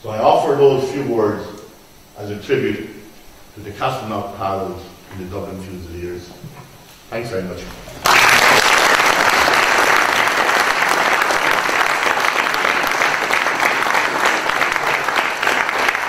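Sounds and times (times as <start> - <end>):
audience applauding: 7.9 - 16.0.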